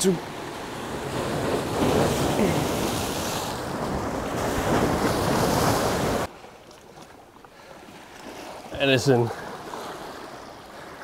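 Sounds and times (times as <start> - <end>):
waves splashing against rocks: 0.0 - 11.0
wind buffeting microphone: 0.3 - 6.3.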